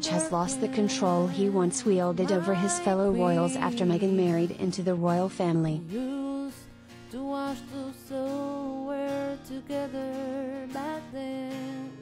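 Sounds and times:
slow melody of held notes: 0.0s - 6.0s.

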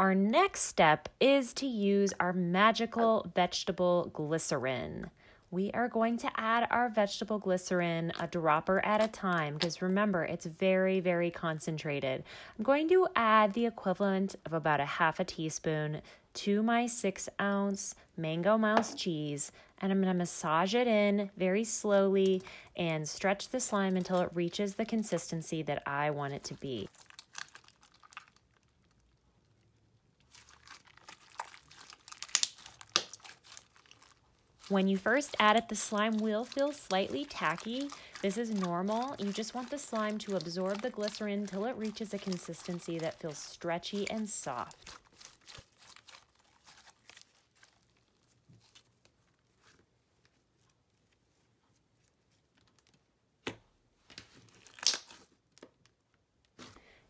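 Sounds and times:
slime squeezed with sticky crackles: 26.8s - 49.2s, 54.6s - 55.3s
slime snaps: 32.2s - 33.2s, 54.8s - 55.1s.

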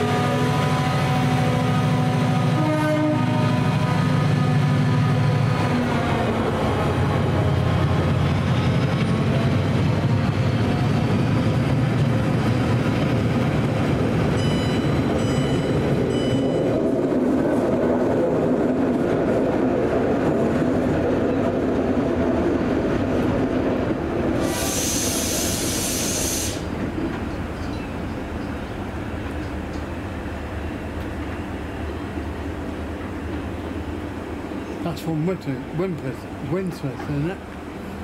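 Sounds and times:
diesel locomotive engine hum: 0.0s - 38.0s
locomotive hiss: 24.3s - 26.8s.

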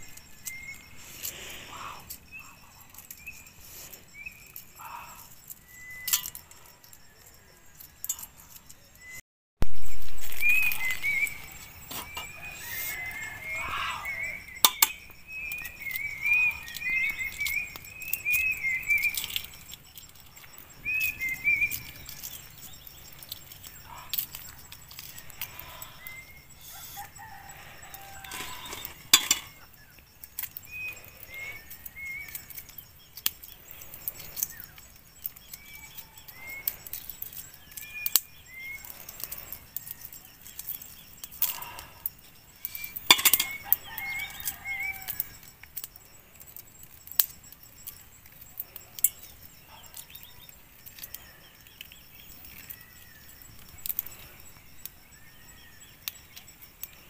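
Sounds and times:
small birds chirping: 0.0s - 9.2s, 9.9s - 57.0s
eggshells cracking and peeling: 9.6s - 26.2s, 27.0s - 49.4s.

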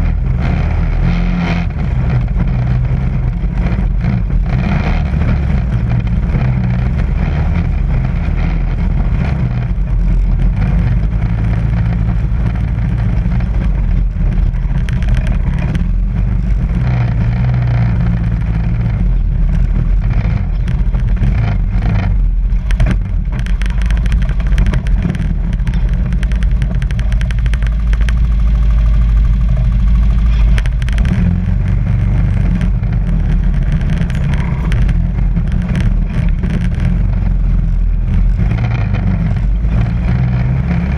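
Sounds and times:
atv engine running: 0.0s - 40.9s
knocks and rattles: 0.0s - 40.9s.

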